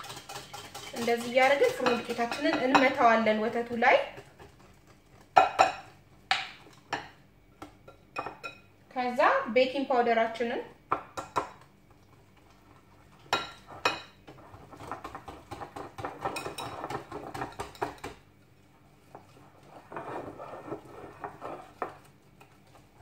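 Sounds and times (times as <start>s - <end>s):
whisk beating batter in glass bowl: 0.0s - 5.9s, 12.0s - 18.2s, 19.0s - 23.0s.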